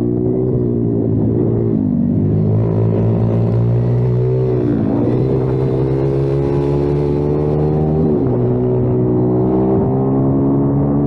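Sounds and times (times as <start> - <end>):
motorbike engine revving: 0.0 - 11.0.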